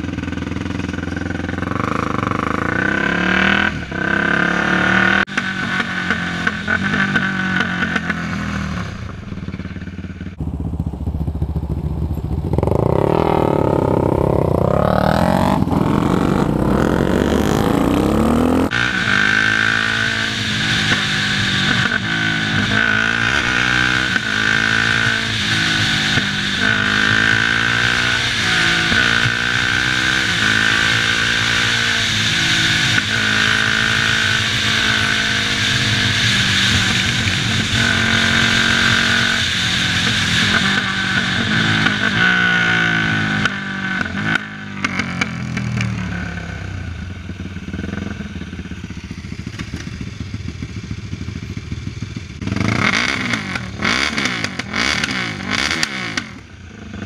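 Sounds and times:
quad engine revving: 0.0s - 9.4s, 10.4s - 47.0s, 52.4s - 57.0s
wind rush: 10.4s - 43.0s.

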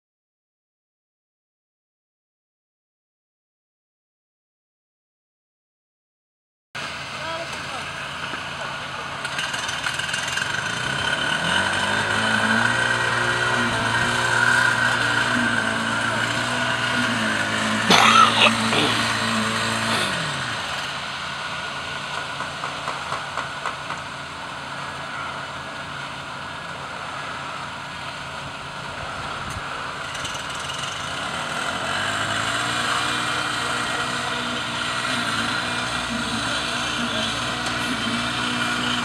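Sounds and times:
diesel truck engine running: 6.8s - 39.0s.

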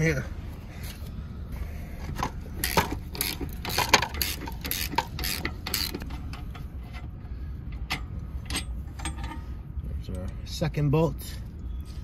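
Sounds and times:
ratchet wrench clicking: 2.6s - 6.0s.

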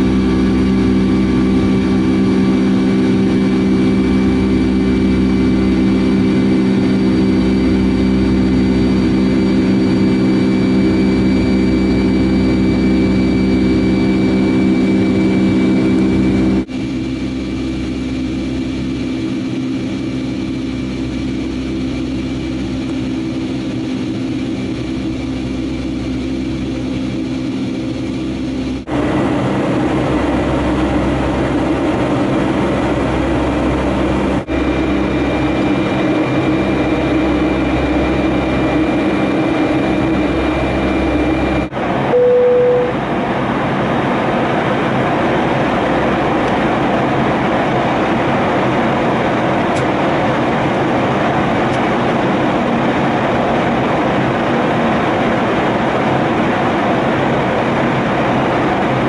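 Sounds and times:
jet engine drone in cabin: 0.0s - 59.0s
short single tone: 42.1s - 43.0s.

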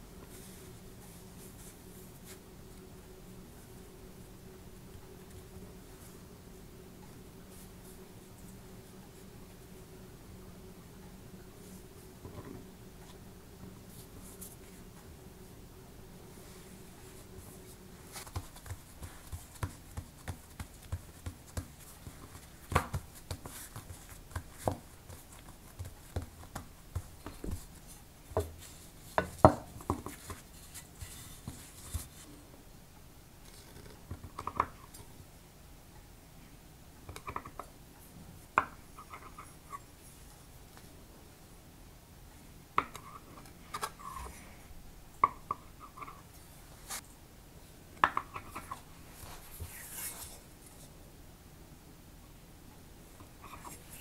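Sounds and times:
hands pressing dough on countertop: 18.1s - 27.7s.

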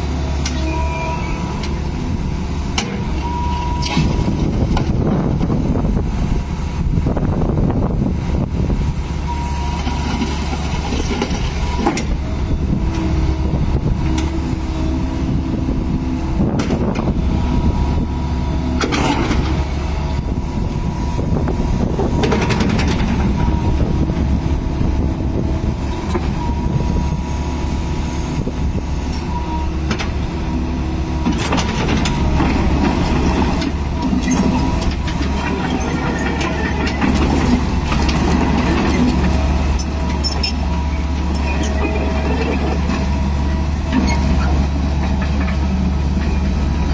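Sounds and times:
excavator diesel engine whining: 0.0s - 46.9s
steel tracks clanking: 29.1s - 46.9s.

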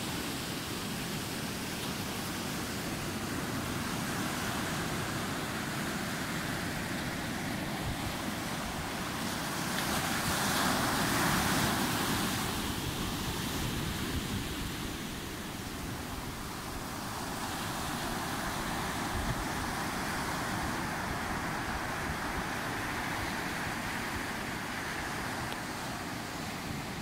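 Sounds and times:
ocean surf on sand beach: 0.0s - 27.0s.

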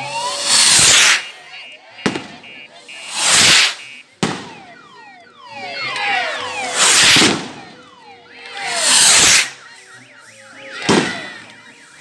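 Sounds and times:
firework rocket launch hiss: 0.3s - 1.2s, 3.0s - 3.8s, 6.7s - 7.4s, 8.8s - 9.6s
firework bang: 2.0s - 2.5s, 3.1s - 4.6s, 6.8s - 7.6s, 10.8s - 11.2s.

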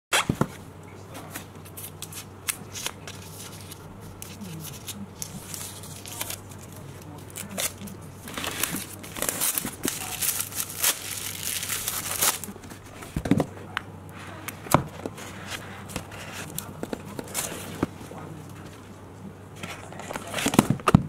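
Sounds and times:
plastic wrap crinkling and tearing: 1.8s - 12.6s.

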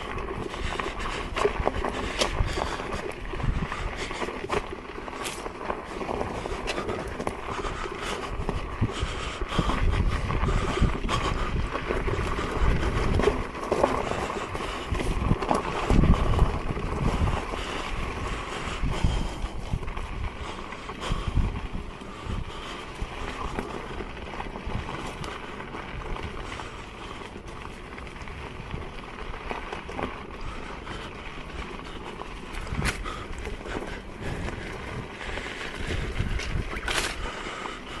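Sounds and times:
tyre and riding noise: 0.0s - 38.0s
wind buffeting microphone: 0.0s - 38.0s.

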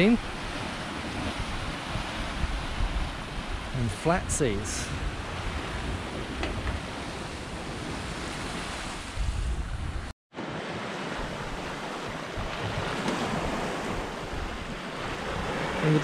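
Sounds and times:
water rushing along hull: 0.0s - 16.0s.

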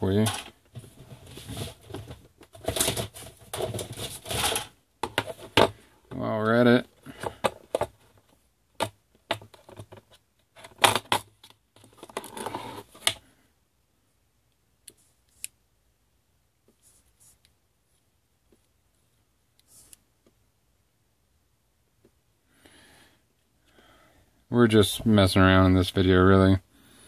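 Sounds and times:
plastic case clicking and rattling: 1.8s - 5.8s, 7.2s - 13.2s.

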